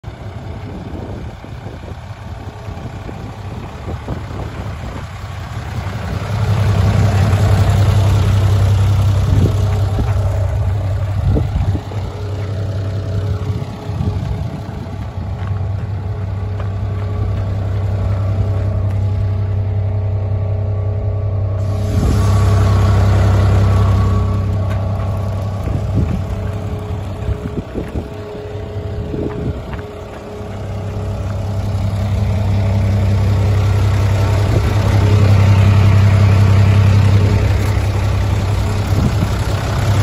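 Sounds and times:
diesel truck engine idling: 0.0 - 40.0.

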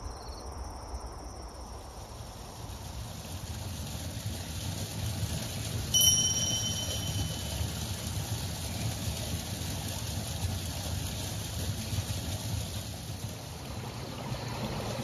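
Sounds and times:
low outdoor rumble: 0.0 - 15.0
bright two-tone chime: 6.0 - 7.9.

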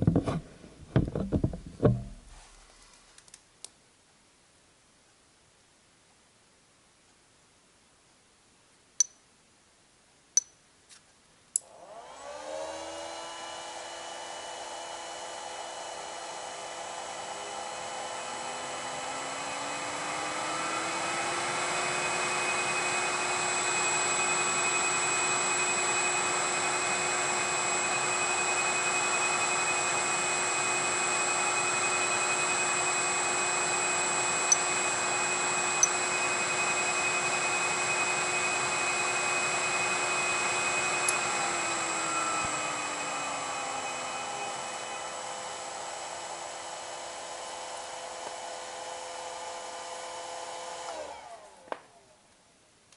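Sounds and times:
electric motor whining: 17.4 - 46.0.

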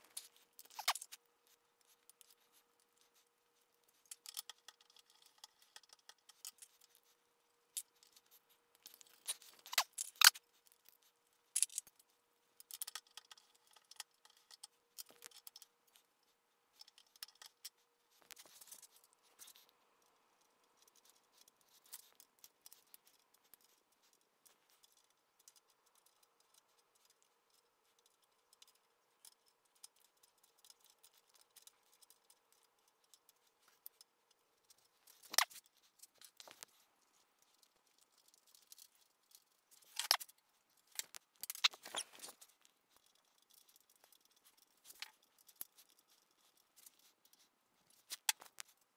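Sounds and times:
metal hand tools clicking and scraping: 0.0 - 1.2, 35.1 - 36.6, 40.9 - 46.0
faint steady hum: 0.0 - 48.9.

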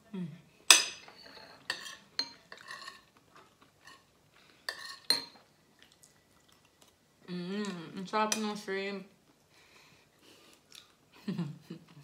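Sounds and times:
cutlery clinking on ceramic plates: 4.7 - 5.4.

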